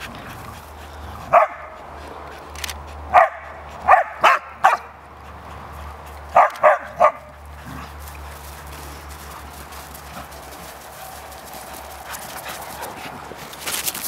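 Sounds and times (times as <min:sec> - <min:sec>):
dog barking: 0:01.3 - 0:01.8, 0:03.1 - 0:05.0, 0:06.3 - 0:07.4.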